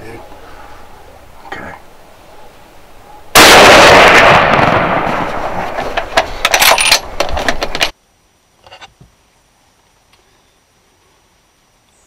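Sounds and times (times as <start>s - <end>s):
rifle shot: 3.4s - 7.2s
sharp clicks and knocks: 5.8s - 7.9s.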